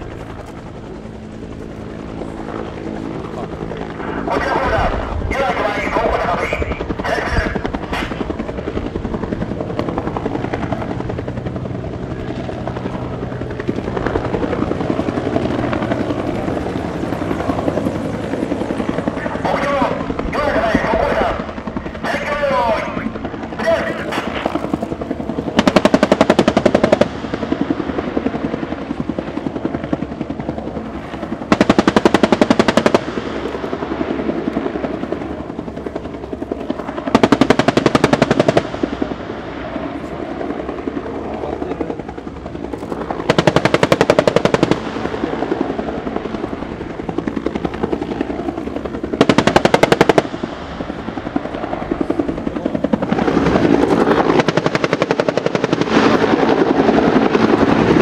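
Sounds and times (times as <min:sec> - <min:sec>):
helicopter rotor and turbine: 0:00.0 - 0:58.0
cannon firing bursts: 0:25.5 - 0:27.2, 0:43.3 - 0:45.0, 0:49.2 - 0:50.4.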